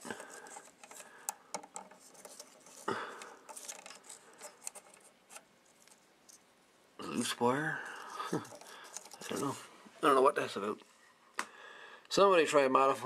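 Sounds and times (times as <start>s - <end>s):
fingers rustling wires and tape: 0.0s - 6.5s, 7.8s - 9.7s.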